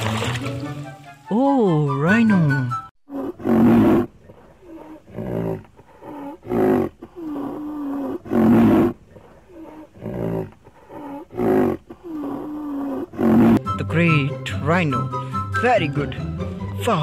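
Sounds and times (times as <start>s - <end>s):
wild animal roaring: 3.1s - 13.6s.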